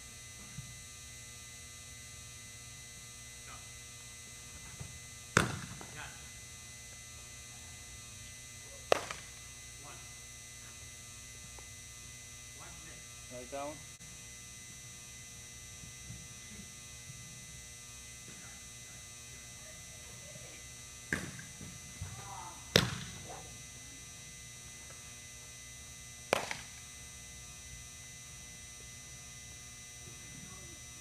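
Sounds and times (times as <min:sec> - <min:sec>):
steady electrical hum: 0:00.0 - 0:31.0
baseball popping into catcher's mitt: 0:05.4 - 0:05.9, 0:08.9 - 0:09.3, 0:21.1 - 0:21.5, 0:22.7 - 0:23.2, 0:26.3 - 0:26.7
sharp smack: 0:08.9 - 0:09.2, 0:26.3 - 0:26.7.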